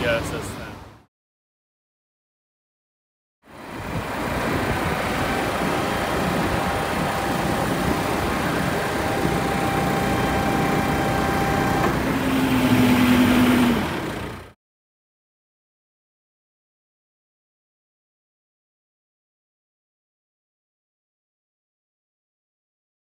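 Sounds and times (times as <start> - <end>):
vehicle engine and traffic: 0.0 - 1.1, 3.4 - 14.6
constant hum: 3.5 - 14.5.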